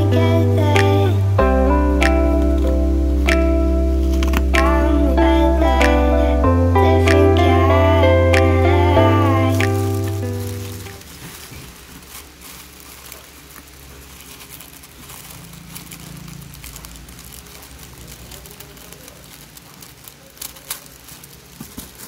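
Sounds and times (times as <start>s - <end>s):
tissue paper crinkling: 9.1s - 22.0s.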